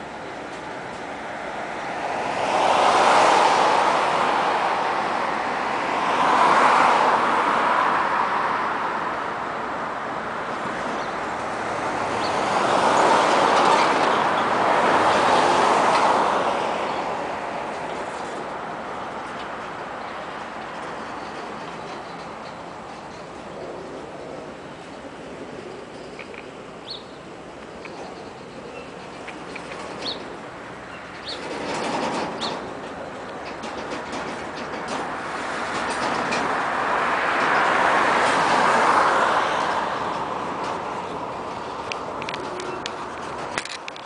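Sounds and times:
train wheels rumbling on rails: 0:08.8 - 0:26.4, 0:27.4 - 0:44.0.

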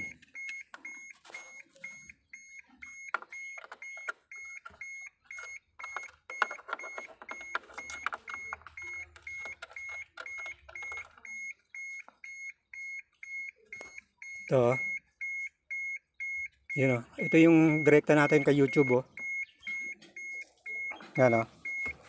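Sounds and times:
clicks and rustles of wires: 0:02.8 - 0:12.3
electronic beeper short beeps: 0:06.3 - 0:22.0.

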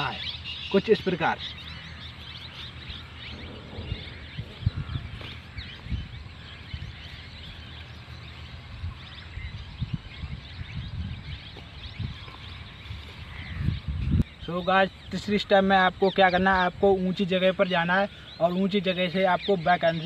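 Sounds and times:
low rumbles: 0:00.0 - 0:14.5
small birds chirping: 0:00.0 - 0:20.0.

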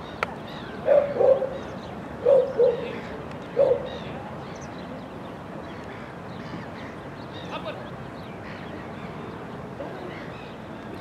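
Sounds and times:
dog barking: 0:00.9 - 0:01.5, 0:02.2 - 0:02.9, 0:03.6 - 0:03.9.

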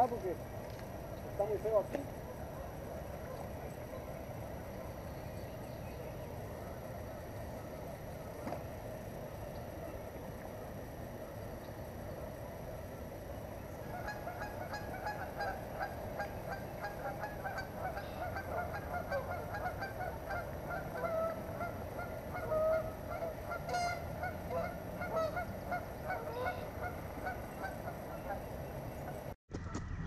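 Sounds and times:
waterfowl flock calling: 0:13.7 - 0:29.3.

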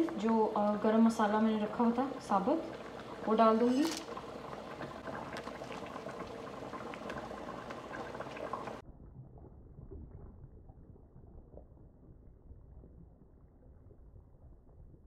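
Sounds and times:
puree bubbling in a frying pan: 0:00.0 - 0:15.0
milk pouring into pan: 0:02.6 - 0:08.8.

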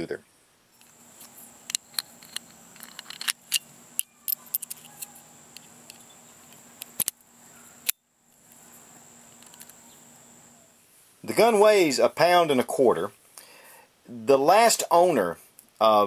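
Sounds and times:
steel parts clicking and rattling: 0:01.6 - 0:07.2.

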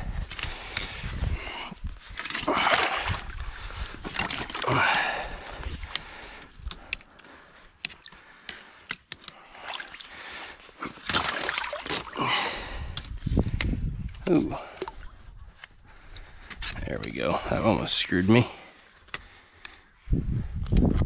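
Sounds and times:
water splashing and sloshing: 0:00.4 - 0:13.6, 0:14.3 - 0:16.5.

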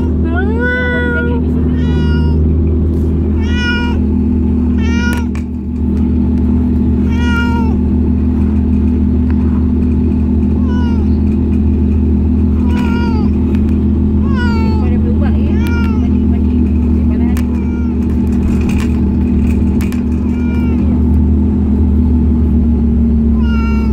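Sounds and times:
steady low hum: 0:00.0 - 0:23.9
cat meowing: 0:00.8 - 0:02.5, 0:03.3 - 0:04.1, 0:04.7 - 0:05.4, 0:06.9 - 0:08.0, 0:10.5 - 0:11.3, 0:12.5 - 0:13.5, 0:14.2 - 0:16.3, 0:17.3 - 0:18.8, 0:20.0 - 0:21.0, 0:23.3 - 0:23.9.

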